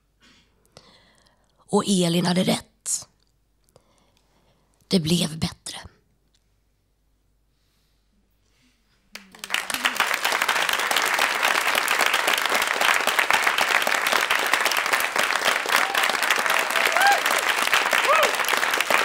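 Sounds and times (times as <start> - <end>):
audience applauding: 9.2 - 19.0.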